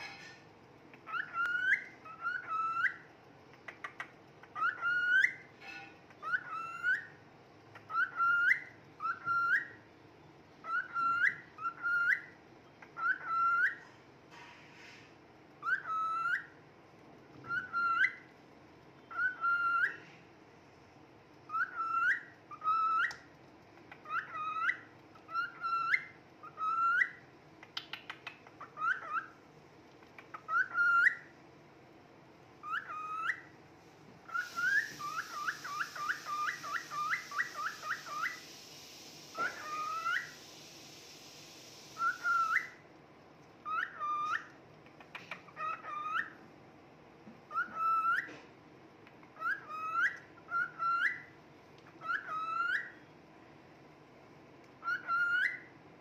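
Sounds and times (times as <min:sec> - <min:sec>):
cockatiel whistling: 0:01.0 - 0:03.1, 0:03.8 - 0:09.8, 0:10.6 - 0:13.8, 0:15.6 - 0:16.6, 0:17.4 - 0:18.3, 0:19.0 - 0:20.1, 0:21.5 - 0:23.2, 0:23.9 - 0:27.2, 0:27.8 - 0:29.4, 0:30.2 - 0:31.3, 0:32.6 - 0:33.5, 0:34.2 - 0:40.5, 0:41.6 - 0:42.8, 0:43.6 - 0:46.4, 0:47.5 - 0:48.3, 0:49.4 - 0:53.0, 0:54.8 - 0:55.7
steady hiss: 0:33.6 - 0:43.2.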